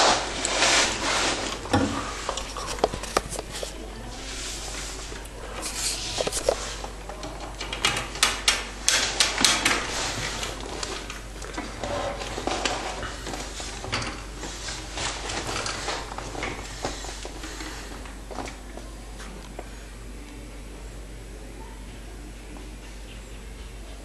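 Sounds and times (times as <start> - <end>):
rodents scrambling in wire cage: 0.0 - 18.6.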